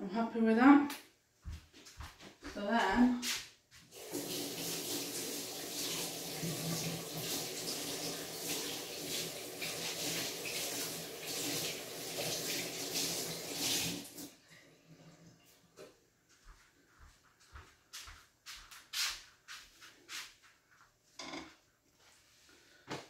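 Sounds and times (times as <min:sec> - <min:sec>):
water running from a tap: 0:03.9 - 0:14.3.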